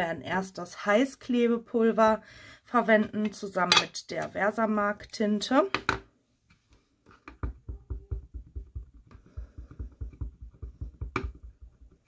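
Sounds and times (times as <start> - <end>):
rubber stamp tapping ink pad: 7.1 - 12.0.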